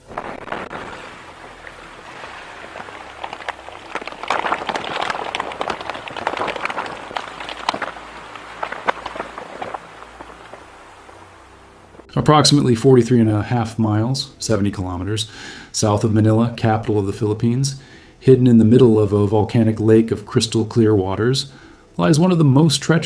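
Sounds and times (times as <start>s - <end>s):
volcano eruption rushing hiss: 0.0s - 12.1s
sharp crackles: 0.0s - 14.8s.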